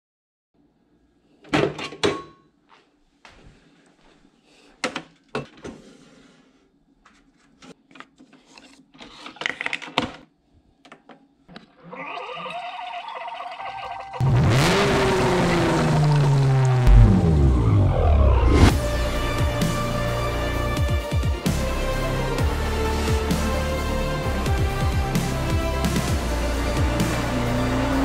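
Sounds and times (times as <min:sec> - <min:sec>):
loud electronic music: 0:14.2 - 0:28.0.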